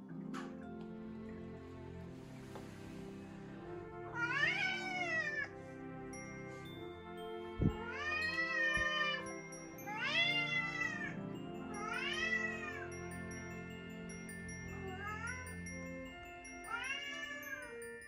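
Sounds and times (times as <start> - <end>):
soft background music: 0.0 - 18.0
cat meowing: 4.2 - 5.5, 11.8 - 12.8.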